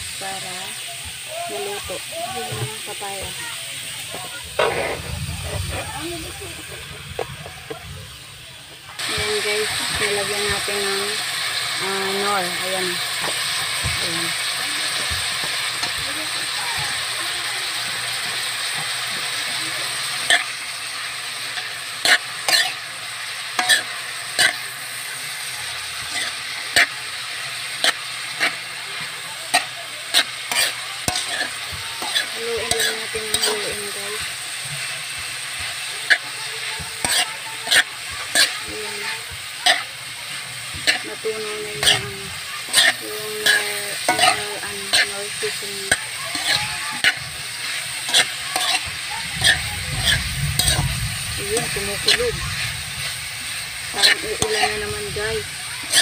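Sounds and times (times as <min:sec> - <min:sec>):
fruit sizzling in a pan: 0:00.0 - 0:56.0
metal spoon scraping a pan: 0:04.1 - 0:07.8, 0:18.2 - 0:56.0.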